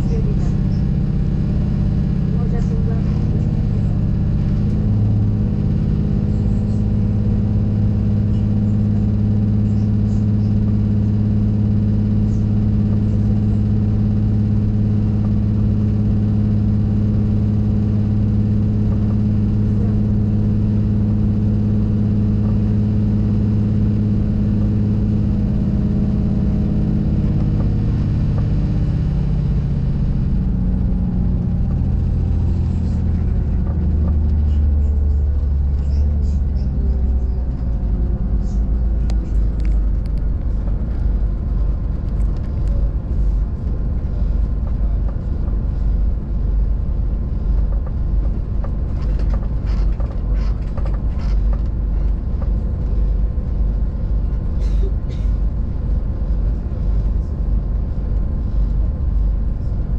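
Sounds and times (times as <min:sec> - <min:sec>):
train engine hum: 0:00.0 - 0:59.9.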